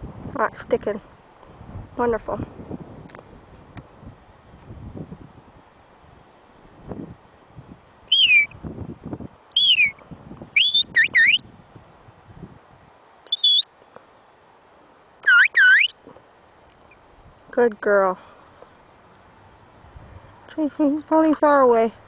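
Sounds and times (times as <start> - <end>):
short loud herding whistles: 8.1 - 8.5, 9.6 - 10.0, 13.3 - 13.7.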